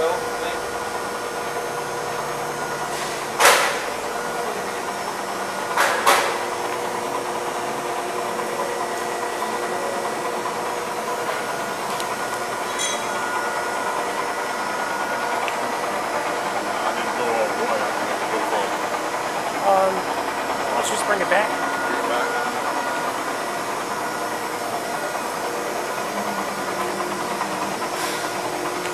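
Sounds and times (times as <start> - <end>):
industrial shop hum: 0.0 - 28.9
sharp ringing knocks: 12.7 - 13.2.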